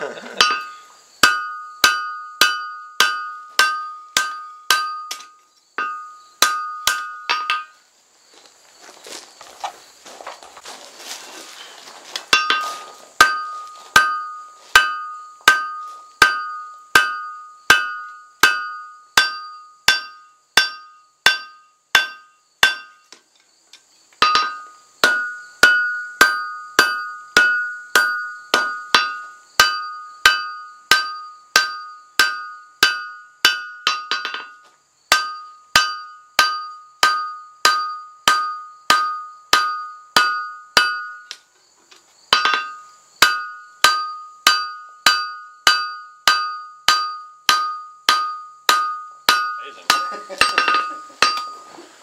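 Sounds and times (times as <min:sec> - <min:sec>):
hammer striking metal on anvil: 0:00.4 - 0:07.8, 0:12.3 - 0:23.1, 0:24.2 - 0:41.4, 0:42.3 - 0:51.7.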